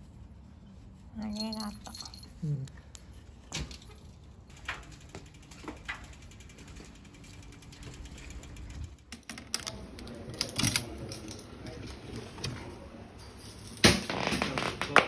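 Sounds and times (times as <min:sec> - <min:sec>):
bicycle freewheel ticking: 0:04.4 - 0:09.1.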